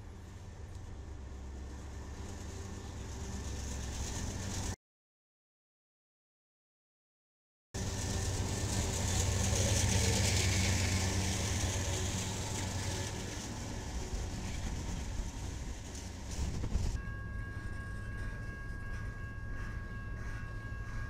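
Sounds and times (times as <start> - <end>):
locomotive engine running: 0.0 - 4.8, 7.8 - 21.0
wheels rumbling on rail: 0.0 - 4.8, 7.8 - 21.0
thin steady tones: 17.0 - 21.0.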